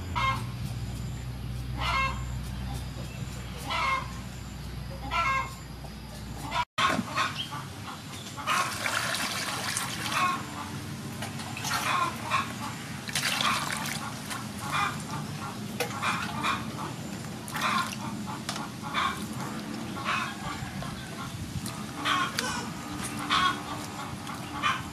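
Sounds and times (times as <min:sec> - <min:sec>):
water splashing: 0:08.5 - 0:10.7, 0:11.3 - 0:15.2, 0:17.4 - 0:18.3.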